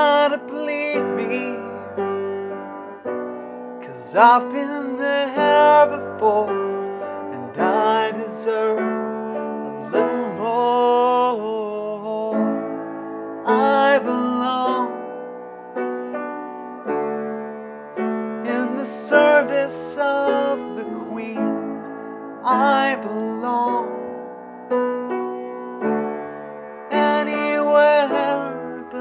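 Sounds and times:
piano chords: 0.0s - 29.0s
man singing held notes: 18.4s - 23.9s.

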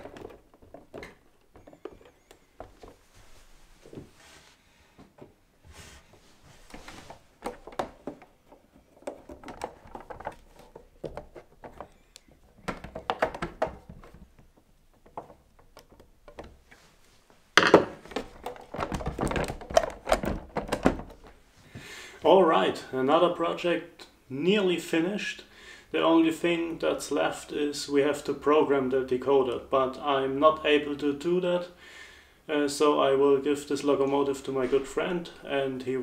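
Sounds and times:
clatter of handling: 6.2s - 16.8s.

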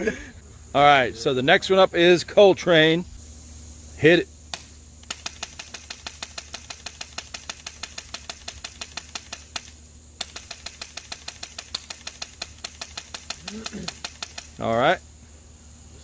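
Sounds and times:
airsoft rifle rapid shots: 4.5s - 14.6s.

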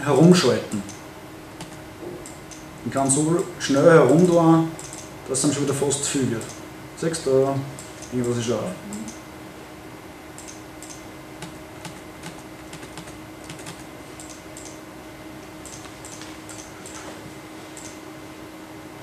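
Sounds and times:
laptop keyboard clicking: 10.4s - 14.8s, 15.6s - 17.0s.

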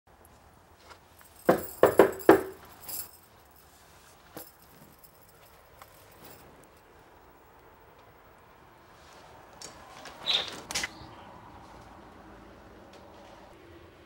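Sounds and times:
knocking on wooden door: 1.5s - 2.6s.

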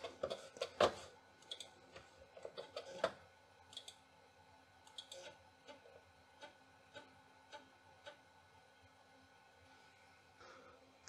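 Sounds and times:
faint computer clicks and ticks: 1.4s - 1.7s, 3.7s - 4.0s, 4.8s - 5.8s.

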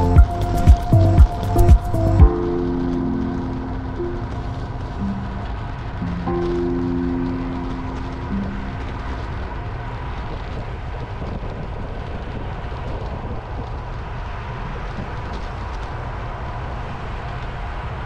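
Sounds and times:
wind and road noise rumble: 0.0s - 18.0s.

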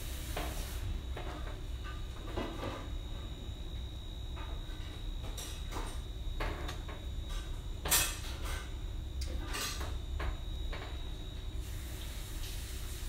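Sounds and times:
kitchen clatters and knocks: 5.2s - 11.0s.

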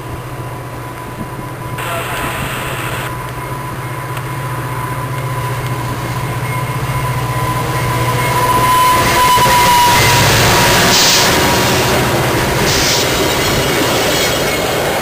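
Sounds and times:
diesel locomotive engine running: 0.0s - 15.0s
train wheel and rail noise: 0.0s - 15.0s.

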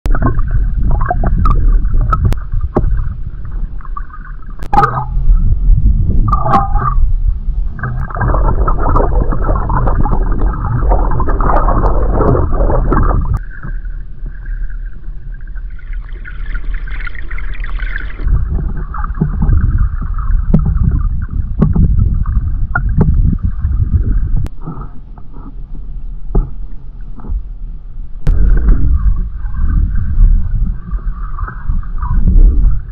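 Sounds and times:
muffled underwater stream rush: 0.0s - 32.9s.

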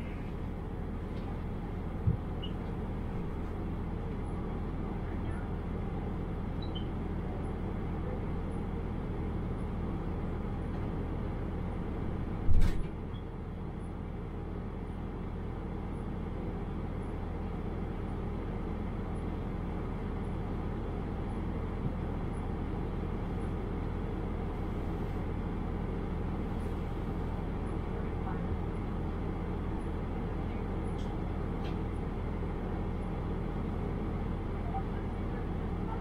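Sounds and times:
diesel engine idling: 0.0s - 12.4s.

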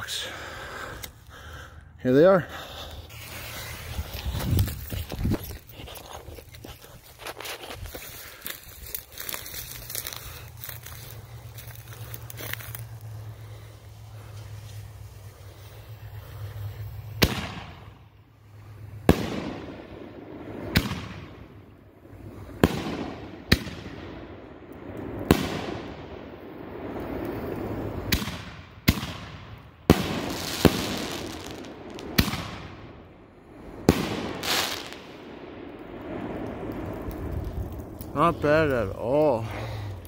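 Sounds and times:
firework shells launching and bursting: 19.0s - 21.5s, 25.0s - 33.1s, 33.7s - 38.9s.

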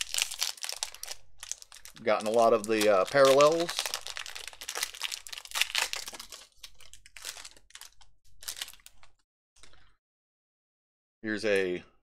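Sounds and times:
foil wrapper crinkling and tearing: 0.0s - 9.2s.

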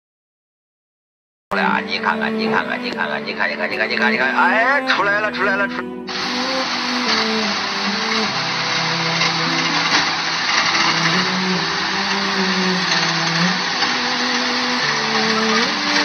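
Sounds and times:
low held tones: 1.5s - 16.0s
truck engine running: 6.1s - 16.0s
water rushing under truck: 6.1s - 16.0s.

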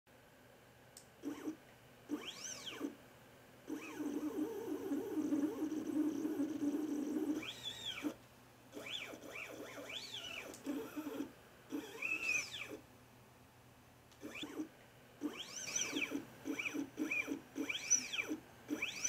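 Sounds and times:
steady motor buzz: 1.2s - 3.0s, 3.7s - 12.8s, 14.2s - 19.0s
stepper motor whining: 1.2s - 3.0s, 3.7s - 12.8s, 14.2s - 19.0s.

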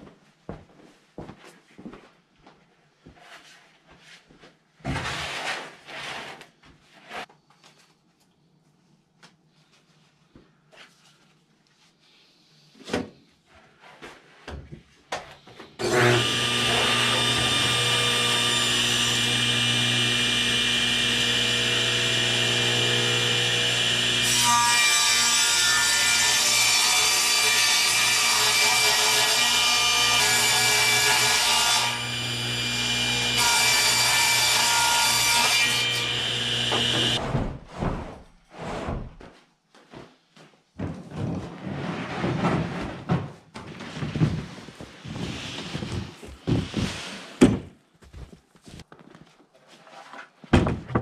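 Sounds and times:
table saw whining: 15.8s - 37.2s.

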